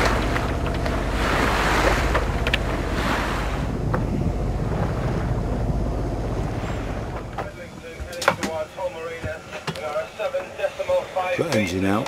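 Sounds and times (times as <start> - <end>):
wind buffeting microphone: 0.0 - 8.7
steady low hum: 0.0 - 11.1
sea water washing: 0.0 - 11.7.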